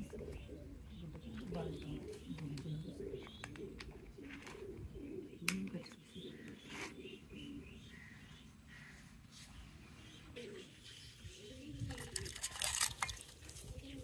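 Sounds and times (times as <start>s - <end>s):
pigeon cooing: 0.0s - 9.0s, 10.2s - 12.8s, 13.6s - 14.0s.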